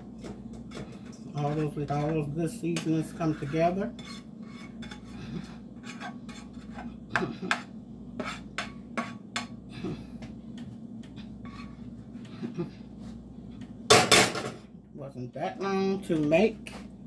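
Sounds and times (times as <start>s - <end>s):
spatula scraping frying pan: 0.0s - 9.7s, 11.0s - 13.1s.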